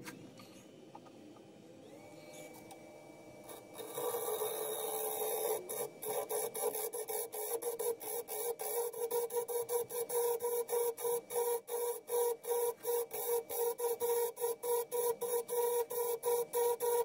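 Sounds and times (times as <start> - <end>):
wood lathe humming: 1.8 - 17.0
turning tool cutting wood hiss: 3.4 - 17.0.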